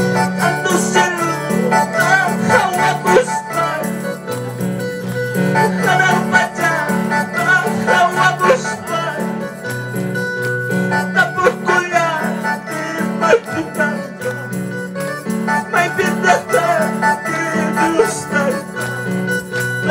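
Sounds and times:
person singing worship music: 0:00.0 - 0:09.9, 0:10.8 - 0:19.9
keyboard: 0:00.0 - 0:19.9
plucked strings: 0:00.0 - 0:19.9.

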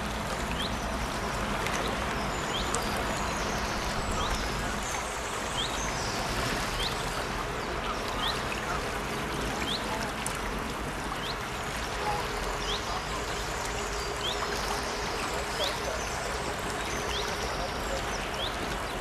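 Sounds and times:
brook babbling: 0:00.0 - 0:19.0.

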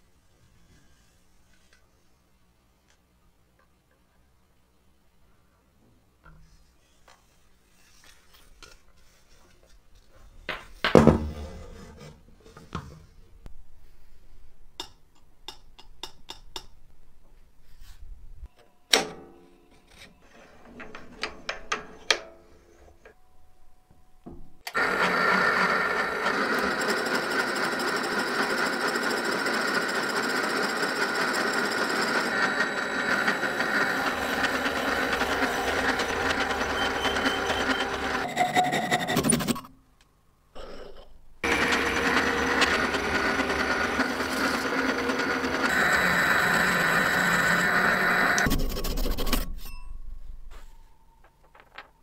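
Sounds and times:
metal lathe running: 0:24.7 - 0:38.4, 0:41.4 - 0:48.5.

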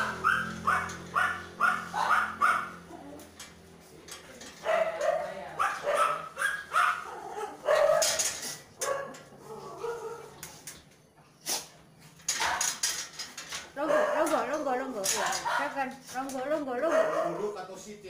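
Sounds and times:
dog barking and yelping: 0:00.0 - 0:03.4, 0:04.6 - 0:10.4, 0:12.3 - 0:12.8, 0:13.8 - 0:15.9, 0:16.8 - 0:17.6.

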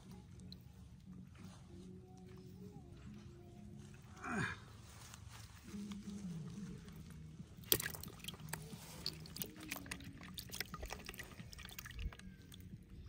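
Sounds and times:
fish splashing in a bucket: 0:07.6 - 0:12.7.

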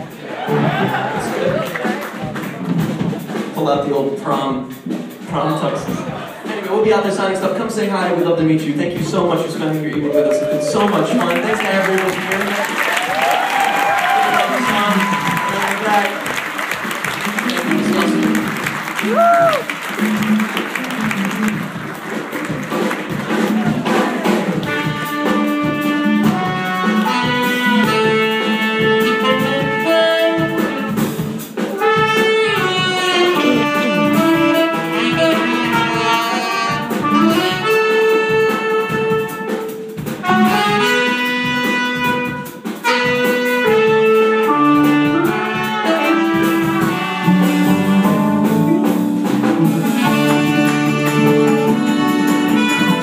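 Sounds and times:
saxophone and trumpets melody: 0:00.0 - 0:01.6, 0:08.9 - 0:12.5, 0:13.5 - 0:53.0
drums: 0:00.0 - 0:53.0
keyboards: 0:17.3 - 0:18.9, 0:42.9 - 0:53.0
electric guitars: 0:17.4 - 0:19.2.

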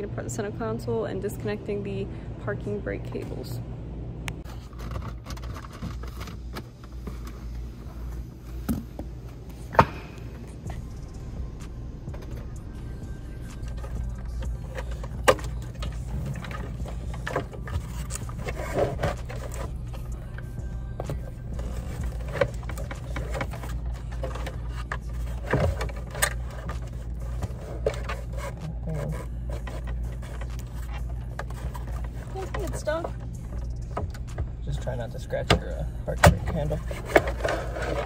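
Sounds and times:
steady low hum: 0:00.0 - 0:38.0
plastic trim clicking and scraping: 0:35.5 - 0:38.0.

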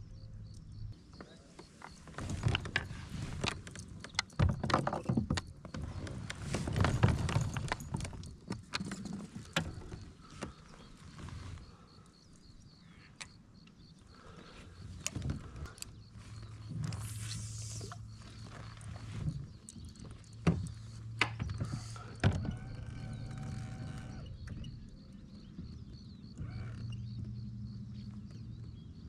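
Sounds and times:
knocks and clatter on plastic kayak: 0:01.1 - 0:11.0, 0:18.1 - 0:28.8.

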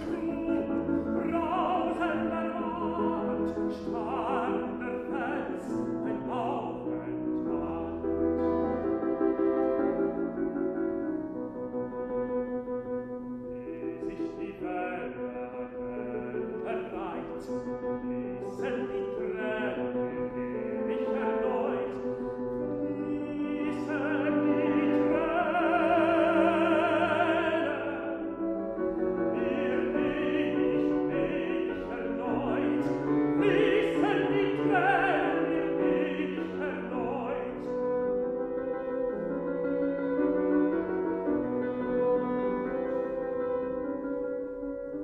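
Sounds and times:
piano accompaniment: 0:00.0 - 0:45.0
tenor singing: 0:00.0 - 0:45.0.

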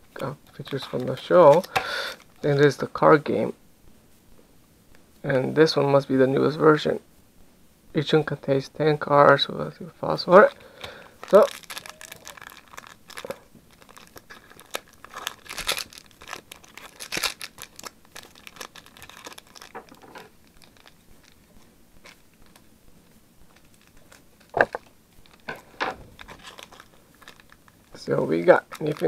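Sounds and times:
foil wrapper tearing and crinkling: 0:00.5 - 0:02.5, 0:10.7 - 0:22.6, 0:23.5 - 0:29.0.

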